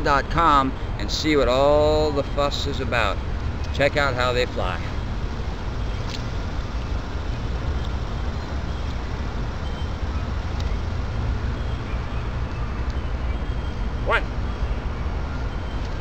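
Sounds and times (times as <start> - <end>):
low unsteady rumble: 2.7 - 16.0
faint ticks: 10.5 - 10.8.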